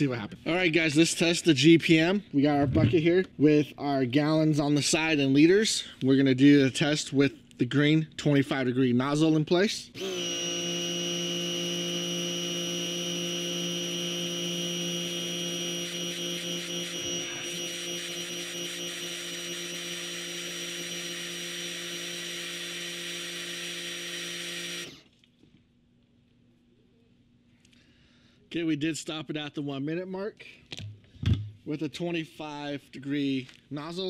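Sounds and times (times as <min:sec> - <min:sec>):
pressure washer motor whine: 0:10.0 - 0:25.0.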